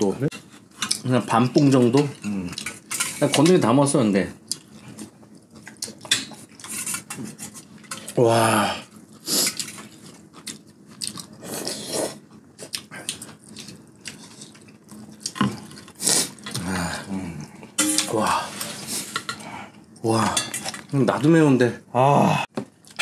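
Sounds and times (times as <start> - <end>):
spoons clinking against metal bowls: 17.8 - 18.4.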